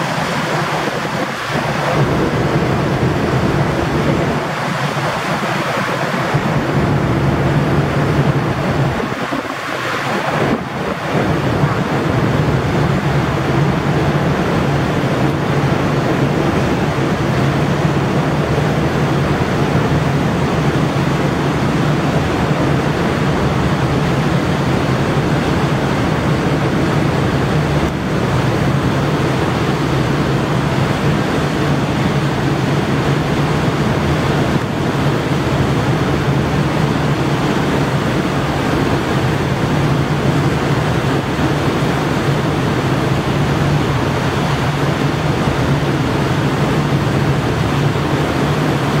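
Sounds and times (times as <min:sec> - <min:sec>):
boat turbines rushing noise: 0:00.0 - 0:49.0
low hum: 0:00.7 - 0:09.2.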